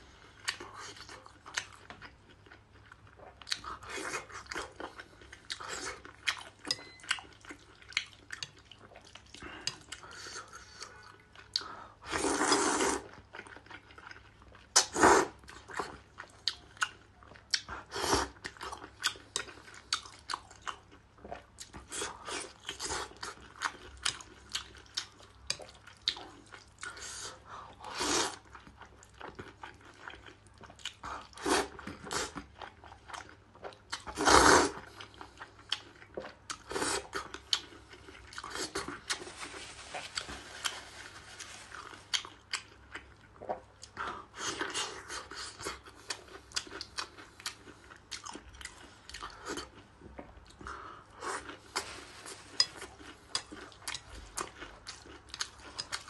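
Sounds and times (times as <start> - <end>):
wet chewing and smacking: 0.4 - 11.7, 13.0 - 40.8, 41.4 - 56.0
noodle slurps: 12.1 - 13.1, 34.2 - 34.8.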